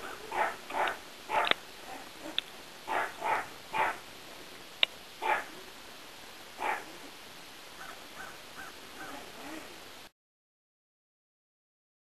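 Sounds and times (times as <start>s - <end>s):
animal harsh calls: 7.8s - 9.8s.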